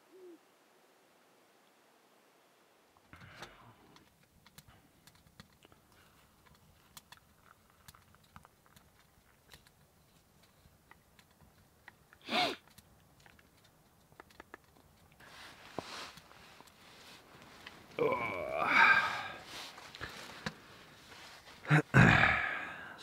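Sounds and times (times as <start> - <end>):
hands handling small objects: 3.9 - 18.6.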